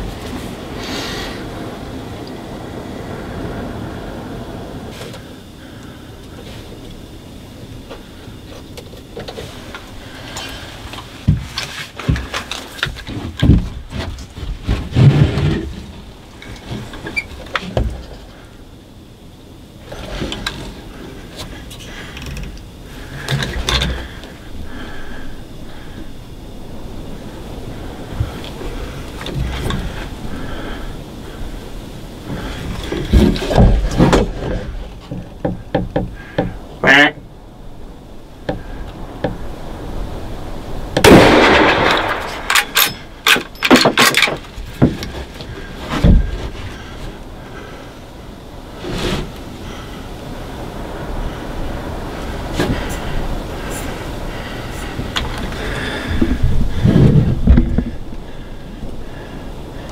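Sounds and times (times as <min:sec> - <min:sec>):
rifle shot with ringing tail: 0:41.0 - 0:43.0.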